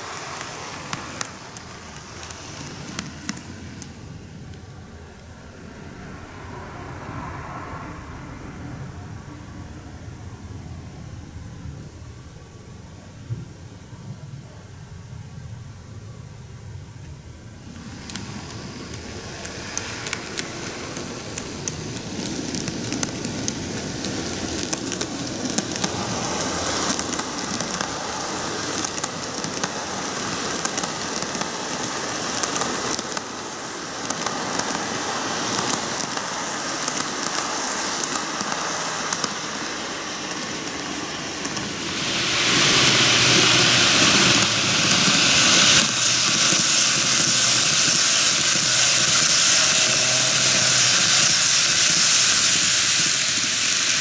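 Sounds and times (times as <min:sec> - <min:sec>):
model train wheels rattling: 0:00.0 - 0:05.3, 0:17.6 - 0:54.0.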